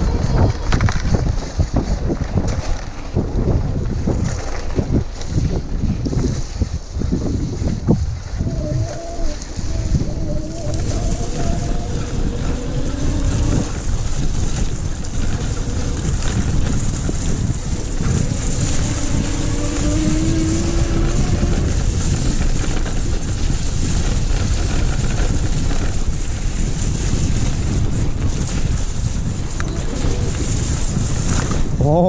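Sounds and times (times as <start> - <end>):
tyres rolling over wet mud: 0.0 - 32.0
wind buffeting microphone: 0.0 - 32.0
electric motor whine: 18.0 - 21.8.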